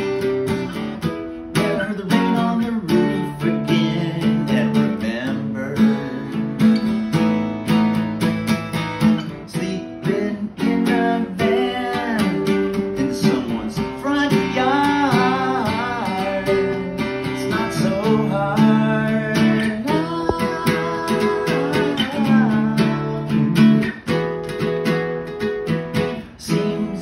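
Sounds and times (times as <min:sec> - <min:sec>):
acoustic guitar strumming chords: 0:00.0 - 0:27.0
man singing: 0:01.5 - 0:07.0, 0:09.2 - 0:24.2, 0:25.9 - 0:27.0.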